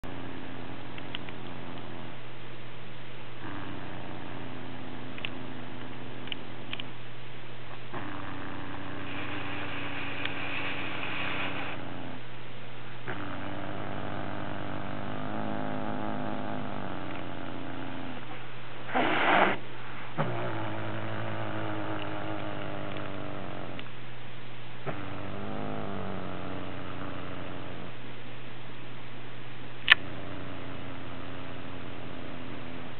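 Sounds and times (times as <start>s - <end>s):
cat growling: 3.4s - 6.8s, 7.8s - 12.3s, 13.0s - 23.9s, 24.8s - 28.0s, 29.9s - 32.9s.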